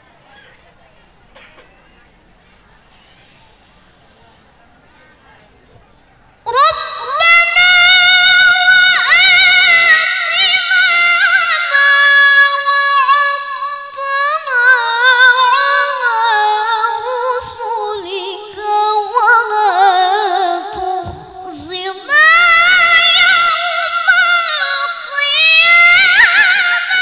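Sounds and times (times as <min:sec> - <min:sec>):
girl reciting melodically: 0:06.5 - 0:27.0.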